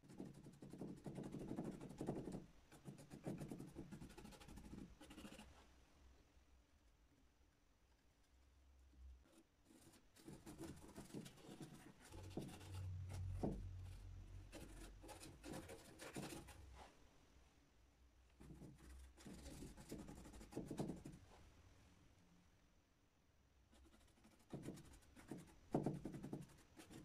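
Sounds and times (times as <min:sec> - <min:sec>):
paintbrush scraping and dabbing: 0:09.2 - 0:17.0.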